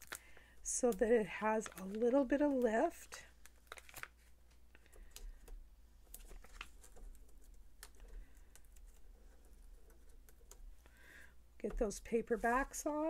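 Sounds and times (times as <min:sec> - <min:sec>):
paper handling: 0:00.9 - 0:10.7.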